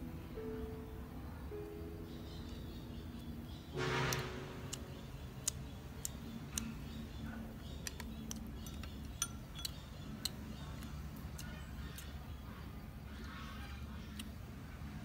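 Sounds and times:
low steady background noise: 0.0s - 15.0s
chewing with mouth clicks: 4.7s - 12.5s.

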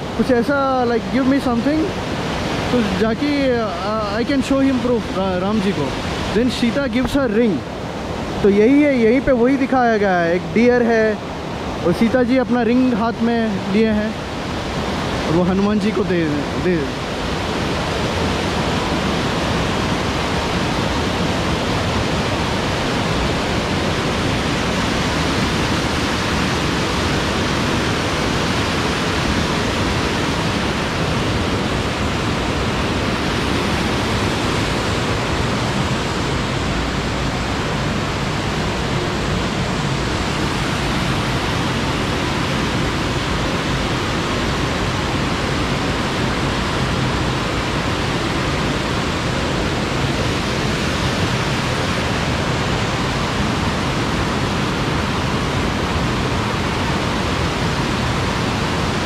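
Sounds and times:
running water rushing: 0.0s - 59.0s.

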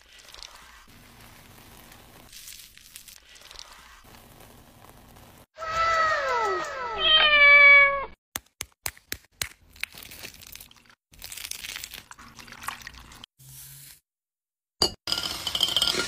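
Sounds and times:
cat meowing: 5.6s - 8.2s.

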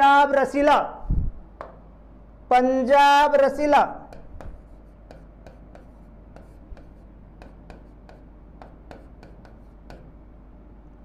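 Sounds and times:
stylus tapping on a screen: 1.6s - 1.8s, 4.1s - 10.1s.

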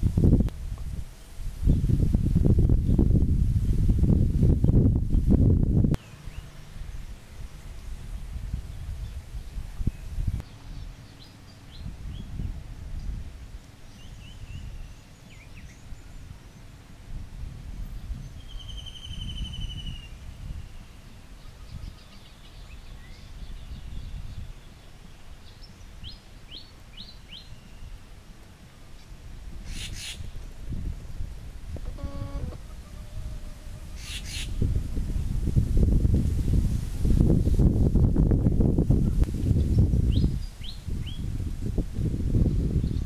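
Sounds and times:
birds chirping and whistling: 18.2s - 21.0s, 33.9s - 34.6s.

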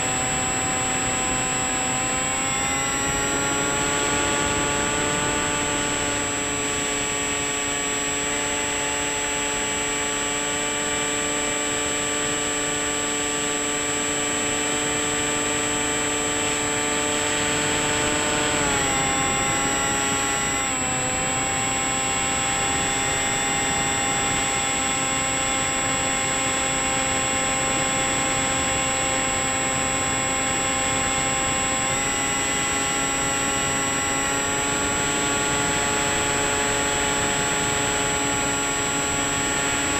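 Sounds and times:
model plane motor whine: 0.0s - 39.9s.

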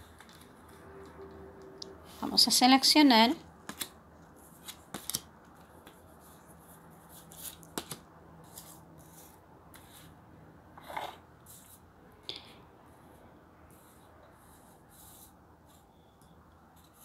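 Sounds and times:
cards scraping on wooden table: 10.8s - 11.2s.

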